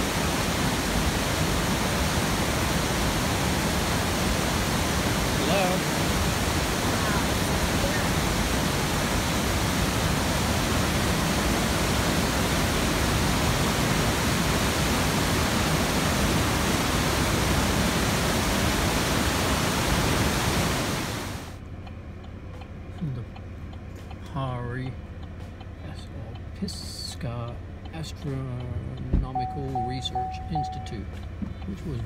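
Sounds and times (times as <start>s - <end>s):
waterfall rushing: 0.0s - 21.6s
quiet outdoor background: 0.0s - 32.0s.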